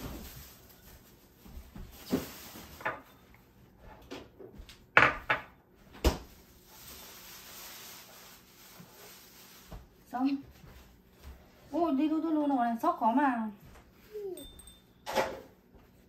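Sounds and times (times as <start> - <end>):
kitchen things knocking and clattering: 4.0 - 6.3, 14.6 - 15.6.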